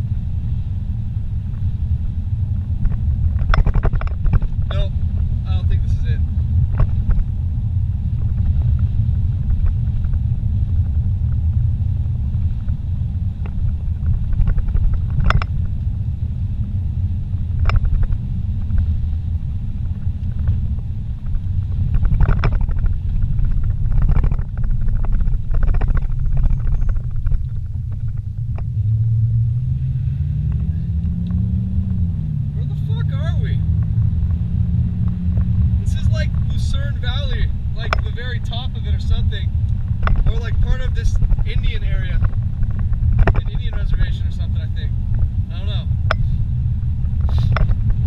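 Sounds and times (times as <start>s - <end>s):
pitched hum: 0.0s - 48.0s
tyre and engine rumble: 0.0s - 48.0s
knocks and rattles: 2.8s - 4.9s, 13.4s - 15.7s, 21.2s - 28.7s, 35.0s - 39.2s, 39.8s - 44.5s.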